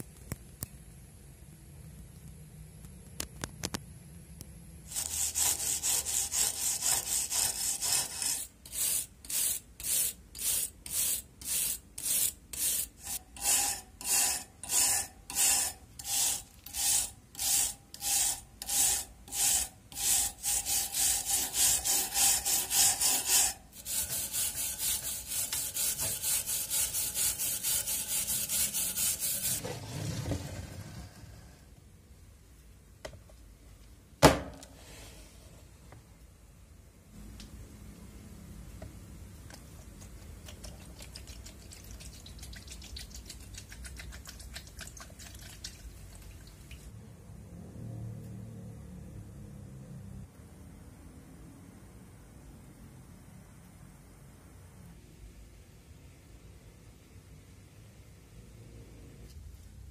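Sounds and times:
hand file scraping steel: 4.9 - 29.8.

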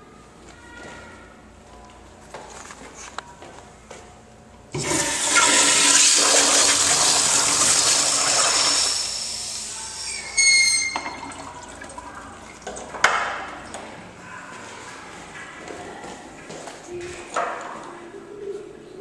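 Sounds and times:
toilet flushing: 4.7 - 13.8
high whistle: 10.0 - 11.2.

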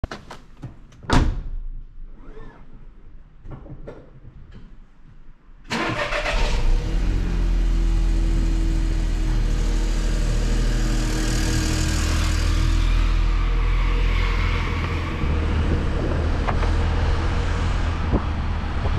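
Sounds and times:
car engine starting and idling: 5.7 - 18.9.

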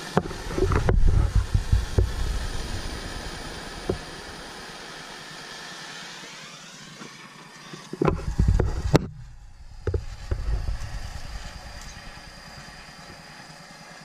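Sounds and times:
propane torch hissing: 0.0 - 14.0
low bumps: 0.3 - 4.1, 8.1 - 12.0.

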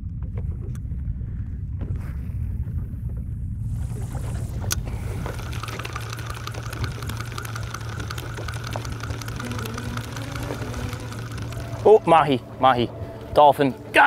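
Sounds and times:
low steady rumble: 0.0 - 14.0
fishing reel whirring and clicking: 4.6 - 13.4.

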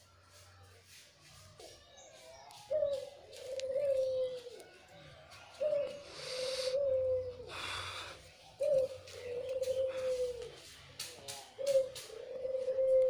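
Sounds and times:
dove cooing: 2.7 - 4.8, 5.5 - 10.6, 11.6 - 13.0.

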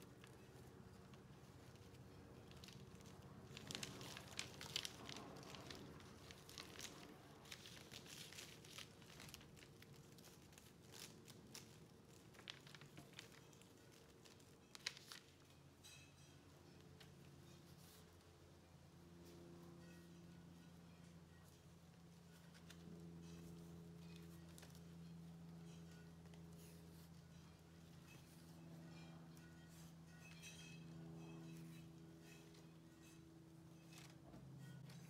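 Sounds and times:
faint steady hum: 0.0 - 35.0
plastic wrap crinkling: 0.1 - 16.0.

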